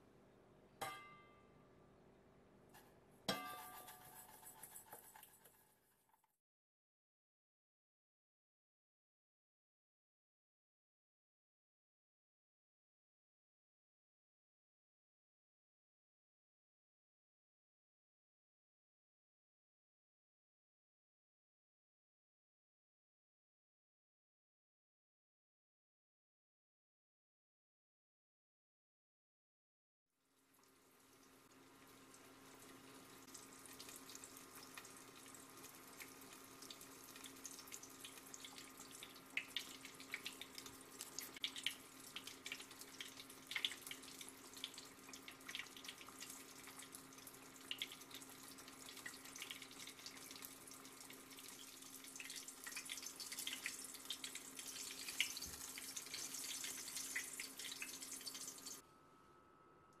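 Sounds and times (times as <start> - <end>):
deep-frying sizzle with pops: 30.2 - 58.8.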